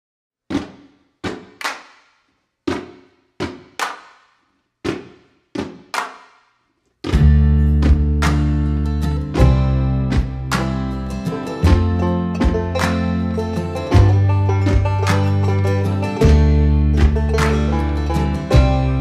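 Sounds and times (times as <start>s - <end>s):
hand claps: 0.5s - 6.4s, 7.1s - 19.0s
bass guitar: 7.1s - 19.0s
strummed guitar: 7.2s - 19.0s.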